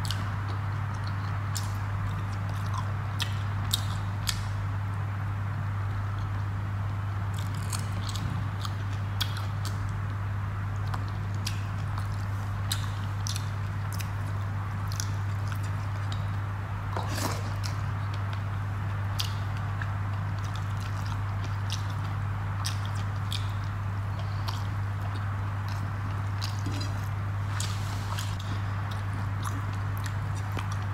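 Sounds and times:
steady low hum: 0.0s - 30.9s
person chewing with wet mouth clicks: 10.8s - 14.1s, 14.9s - 16.4s, 19.2s - 30.9s.

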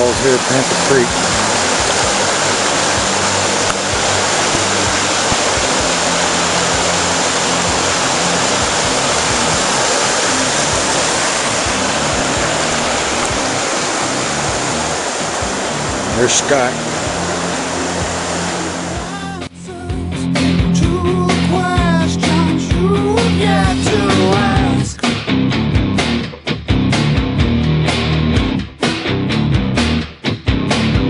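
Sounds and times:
white water rushing over boulders: 0.0s - 19.5s.

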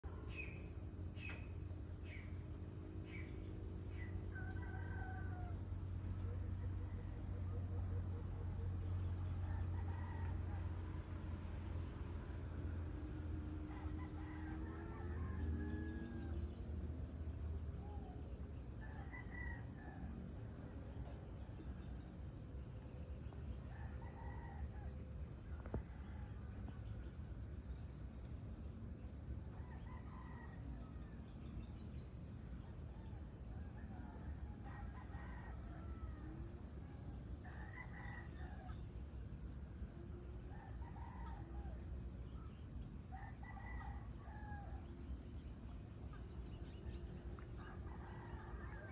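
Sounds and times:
roosters crowing: 4.0s - 7.6s, 13.5s - 16.6s, 29.6s - 31.2s, 33.1s - 38.8s, 43.1s - 44.9s, 47.5s - 48.9s.

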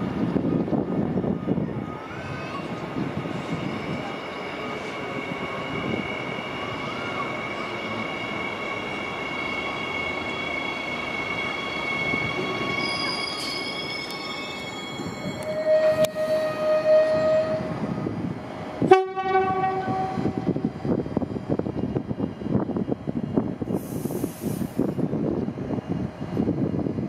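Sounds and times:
train wheels rumbling on rail: 0.0s - 27.0s
high-pitched squeal: 1.9s - 17.9s.

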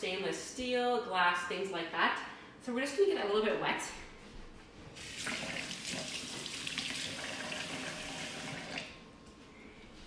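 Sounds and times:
kitchen tap running: 5.0s - 9.0s.

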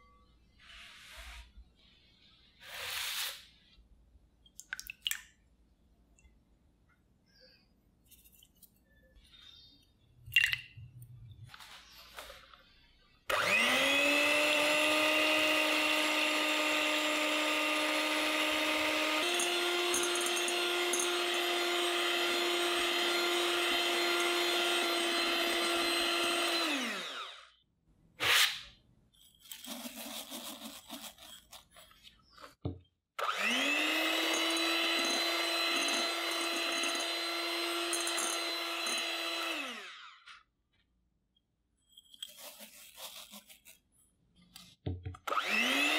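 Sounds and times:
electric hand mixer whining: 13.3s - 27.5s, 33.2s - 40.3s, 45.2s - 45.9s.

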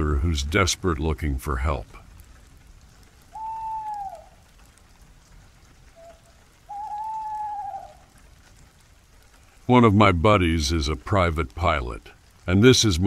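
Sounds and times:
steady rain: 0.0s - 13.0s
long whistled calls: 3.3s - 4.4s, 6.0s - 8.0s.

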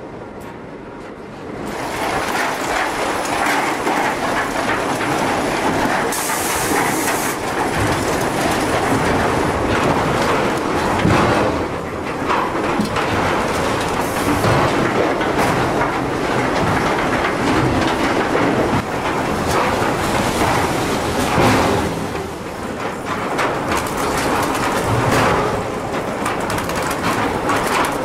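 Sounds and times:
conveyors clattering and rumbling: 0.0s - 28.0s.

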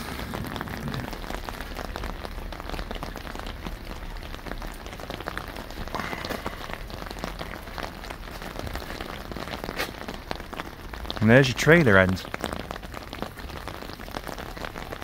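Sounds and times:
heavy rain on an umbrella: 0.0s - 15.0s.

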